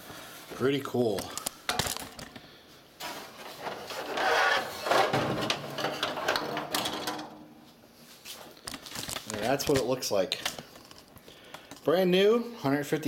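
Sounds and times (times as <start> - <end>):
plastic panel scraping on table: 3.0 - 7.1.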